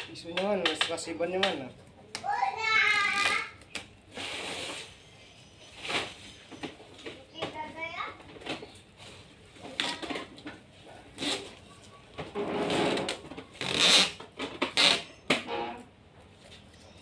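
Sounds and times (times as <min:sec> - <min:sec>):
plastic hose rustling and knocking: 0:05.8 - 0:10.7, 0:12.1 - 0:16.7.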